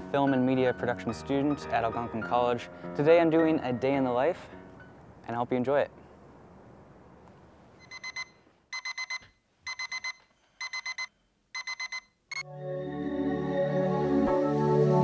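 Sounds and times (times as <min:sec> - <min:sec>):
music: 0:00.0 - 0:05.0, 0:12.4 - 0:15.0
digital alarm beeping: 0:07.8 - 0:12.5.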